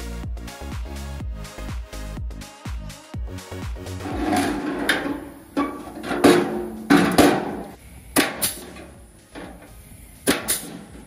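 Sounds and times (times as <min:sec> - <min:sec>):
pneumatic punch clacking: 0:04.4 - 0:11.0.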